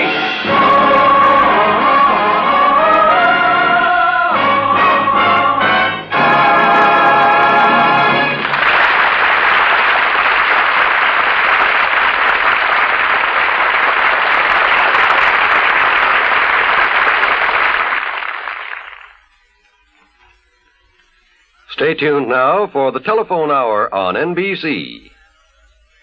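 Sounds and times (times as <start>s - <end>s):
orchestra and choir chord: 0.0s - 8.6s
audience applauding: 7.6s - 19.2s.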